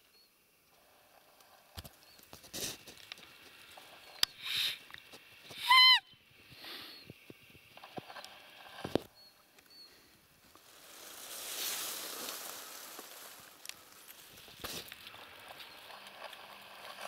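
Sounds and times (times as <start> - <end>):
faint clicks: 0.6 - 5.6
loud whistle-like call: 5.5 - 6.2.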